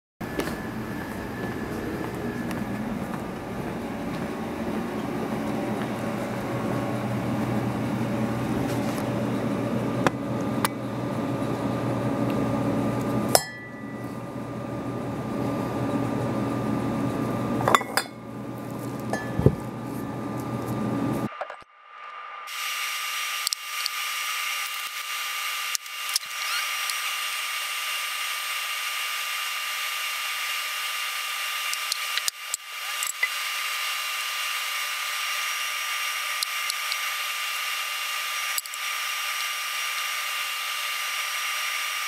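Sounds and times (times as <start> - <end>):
whooshing hum: 0.2 - 21.4
glass bottles clinking: 17.7 - 18.2, 19.1 - 19.6.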